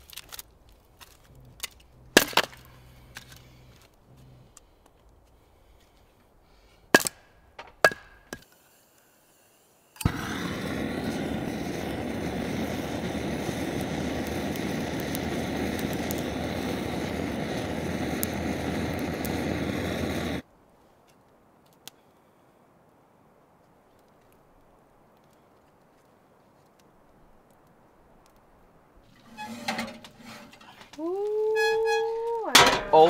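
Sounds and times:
gas torch hissing: 8.4 - 20.4.

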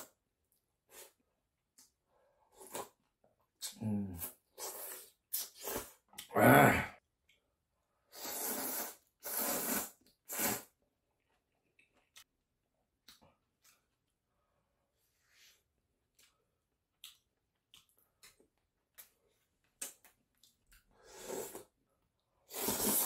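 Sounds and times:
noodles and broth slurping: 8.1 - 10.8, 21.0 - 21.8, 22.4 - 23.0.

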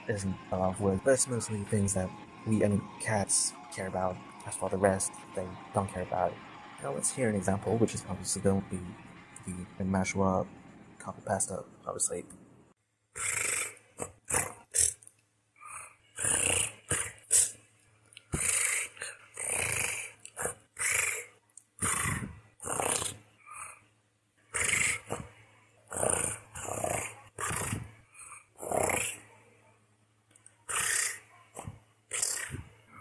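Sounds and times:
person making purring sounds: 13.2 - 15.0, 15.6 - 17.5, 18.2 - 21.2, 21.8 - 23.8, 24.6 - 25.3, 25.9 - 29.2, 30.7 - 32.7.

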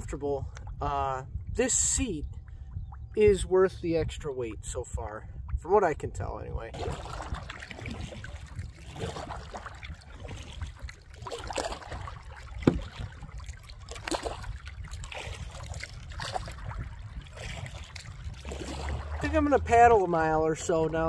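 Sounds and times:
paddle dipping into water: 6.7 - 21.0
water splashing and dripping: 6.7 - 21.0.

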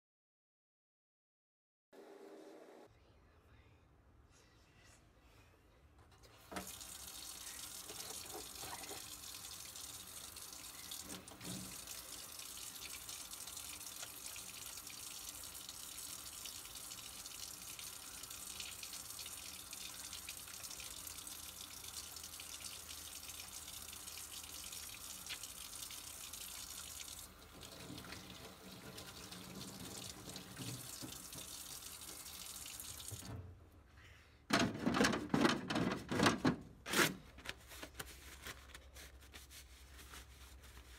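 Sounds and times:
faucet water running into sink: 6.5 - 33.4
hands scrubbing under water: 37.6 - 40.9.

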